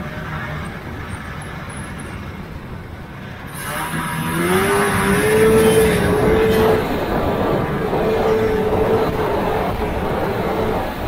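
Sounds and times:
snowmobile engine revving: 3.2s - 11.0s.

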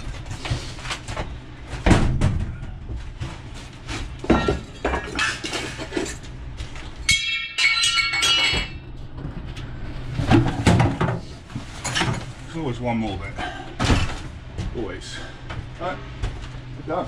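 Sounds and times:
steady low hum: 0.0s - 17.0s
ringing metallic clang: 7.1s - 8.8s.

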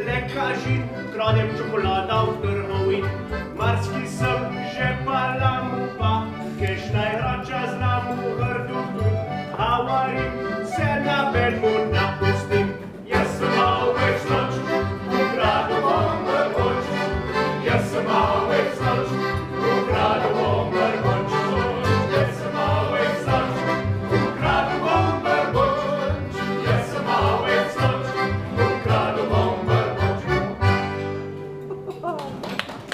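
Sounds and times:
accordion: 0.0s - 31.9s
acoustic guitar: 0.0s - 32.1s
voices singing along: 10.7s - 30.3s.

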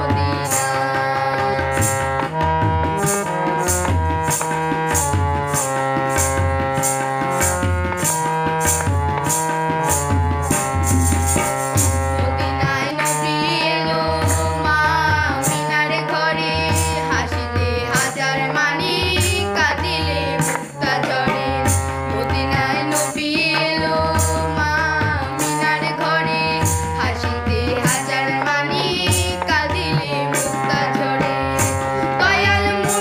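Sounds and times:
woman and boy singing: 0.0s - 2.2s, 11.8s - 33.0s
tabla: 0.0s - 33.0s.

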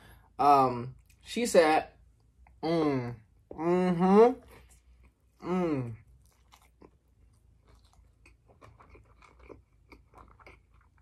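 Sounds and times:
mouth chewing: 4.5s - 11.0s.

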